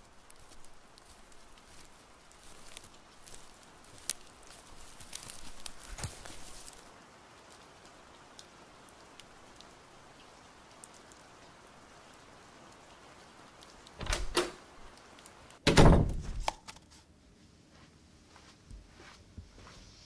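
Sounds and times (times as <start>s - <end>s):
faint outdoor hiss: 0.0s - 20.0s
paper scroll thudding on grass: 0.3s - 6.9s.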